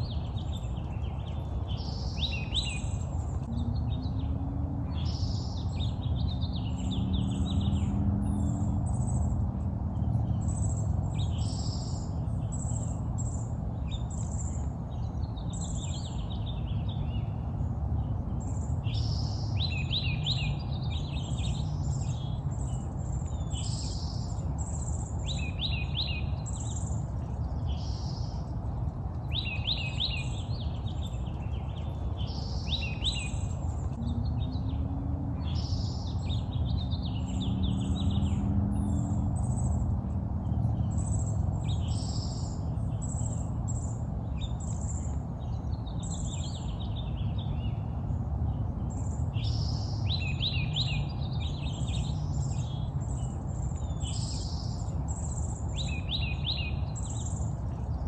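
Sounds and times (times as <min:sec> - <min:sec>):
songbirds chirping: 0:00.0 - 0:58.0
low background rumble: 0:02.8 - 0:13.5, 0:30.2 - 0:46.1.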